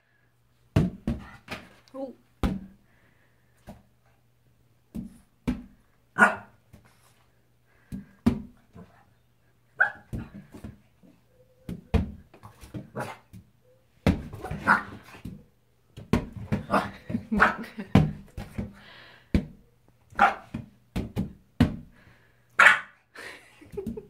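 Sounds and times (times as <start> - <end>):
puppy barking: 6.2 - 6.5, 9.8 - 10.1, 14.4 - 15.0, 20.2 - 20.5, 22.6 - 23.0.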